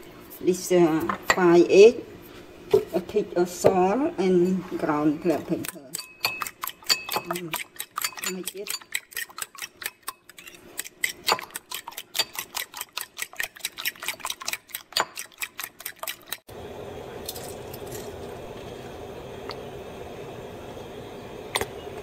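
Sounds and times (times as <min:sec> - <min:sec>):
fork beating eggs in bowl: 0:03.8 - 0:16.5.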